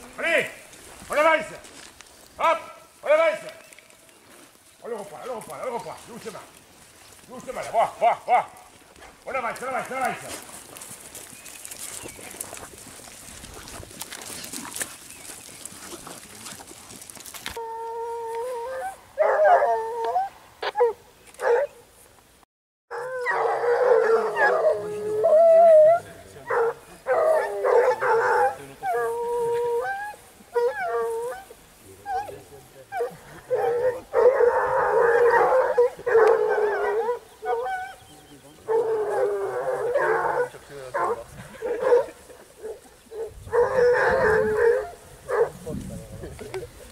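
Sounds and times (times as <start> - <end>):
footsteps through grass and leaves: 0.0 - 20.2, 24.0 - 46.9
hound howling: 17.6 - 21.7, 22.9 - 45.6.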